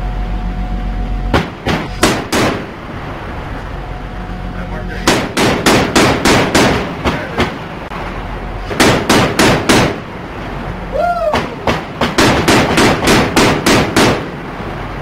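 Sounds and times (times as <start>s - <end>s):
machine gun firing single shots: 5.1s - 6.9s, 8.8s - 10.0s, 12.0s - 14.3s.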